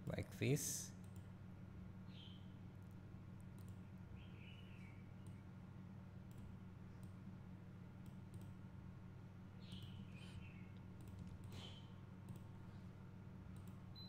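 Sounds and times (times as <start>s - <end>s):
low steady hum: 0.0s - 14.0s
computer mouse clicks: 3.4s - 3.8s, 8.0s - 8.6s, 10.8s - 12.5s, 13.5s - 13.8s.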